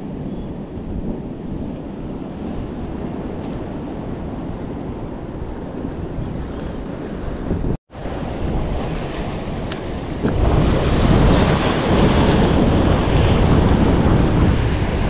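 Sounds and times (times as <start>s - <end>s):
wind buffeting microphone: 0.0s - 15.0s
waves breaking on rocks: 8.0s - 15.0s.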